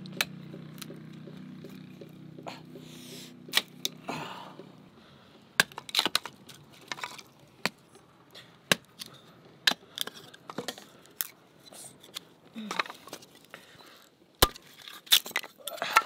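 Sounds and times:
sharp knocks and cracks: 0.0 - 2.5, 3.4 - 4.0, 5.6 - 7.8, 8.7 - 11.4, 14.4 - 16.0
low steady hum: 0.0 - 16.0.

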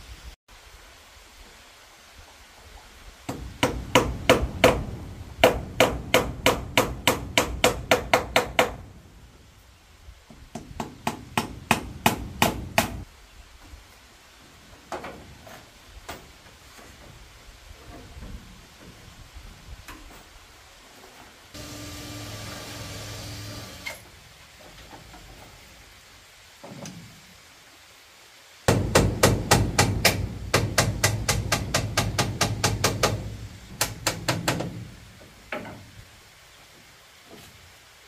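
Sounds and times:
hammer striking bamboo: 3.3 - 8.8, 10.5 - 13.0, 28.7 - 34.8.

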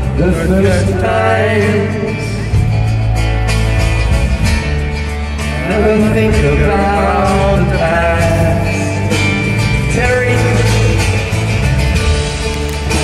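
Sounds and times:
man singing long held notes: 0.0 - 2.6, 5.6 - 11.4
rock band playing live: 0.0 - 13.0.

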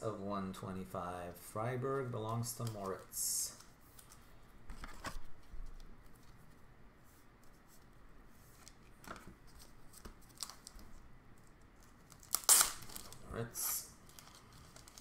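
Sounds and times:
plastic sleeve rustling: 7.5 - 15.0.

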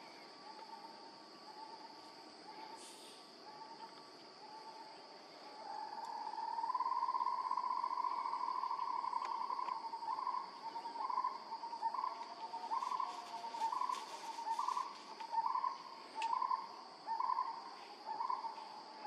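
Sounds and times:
high insect buzz: 12.0 - 16.7.

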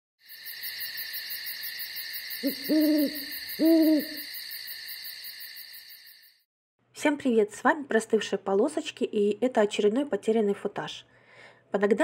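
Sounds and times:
owl hooting: 2.3 - 4.4.

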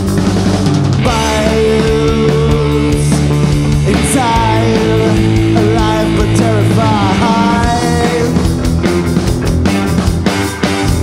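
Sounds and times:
drum kit: 0.0 - 11.0
electric bass: 0.0 - 11.0
electric guitar: 0.0 - 11.0
sliding vocal line: 1.0 - 8.5.

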